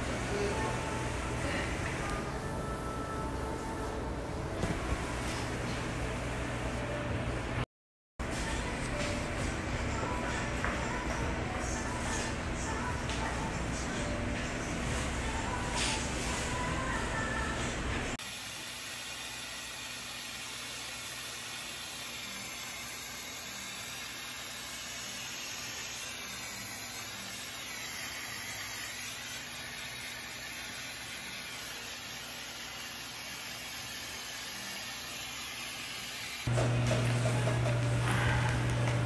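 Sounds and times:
mist steamer hissing: 0:18.2 - 0:36.5.

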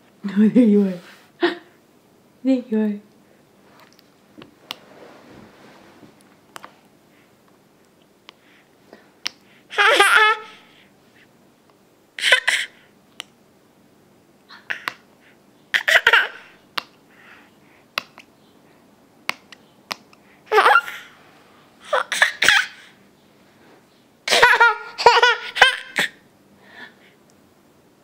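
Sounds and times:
baby giggling: 0:09.7 - 0:10.6, 0:12.2 - 0:12.8, 0:15.7 - 0:16.5, 0:20.5 - 0:21.1, 0:21.8 - 0:22.8, 0:24.3 - 0:26.2.

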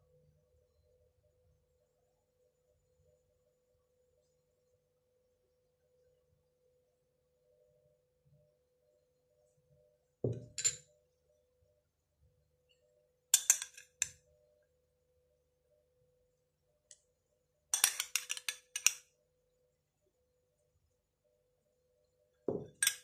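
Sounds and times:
metal spoon clinking on glass: 0:10.3 - 0:10.9, 0:13.4 - 0:14.2, 0:17.8 - 0:19.0, 0:22.6 - 0:23.0.

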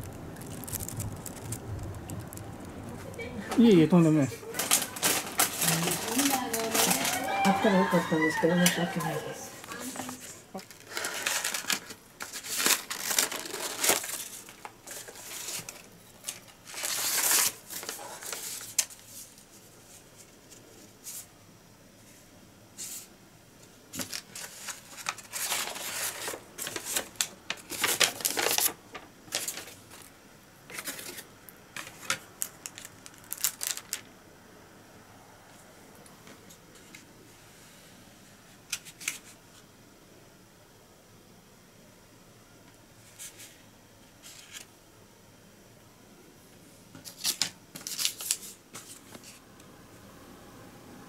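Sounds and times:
paper rustling and crinkling: 0:00.0 - 0:21.3, 0:23.9 - 0:34.1, 0:38.7 - 0:39.6, 0:44.2 - 0:44.7, 0:47.0 - 0:49.4.

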